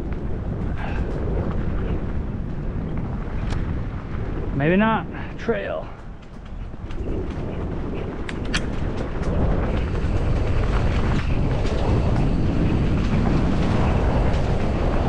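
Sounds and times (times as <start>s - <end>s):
bike tyres rolling on dirt: 0.0s - 15.0s
wind rumbling on microphone: 0.0s - 15.0s
sharp ticks: 5.8s - 15.0s.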